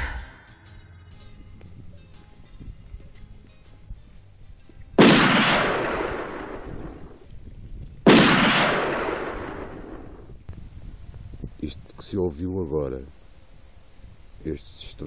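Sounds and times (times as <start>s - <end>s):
loud booms: 5.0s - 6.9s, 8.0s - 10.2s.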